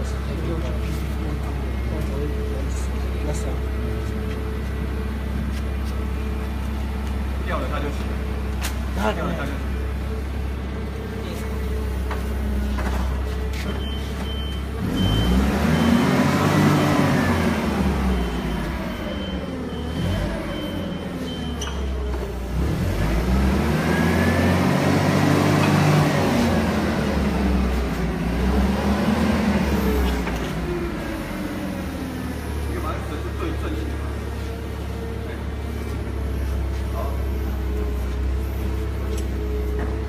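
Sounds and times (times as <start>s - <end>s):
forklift engine idling and revving: 0.0s - 40.0s
pulsed beeping alarm: 13.8s - 22.0s.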